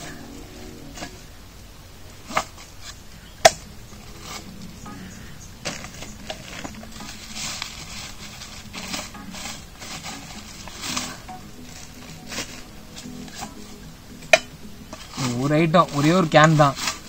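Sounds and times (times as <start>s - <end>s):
bag rustling: 3.9s - 13.9s.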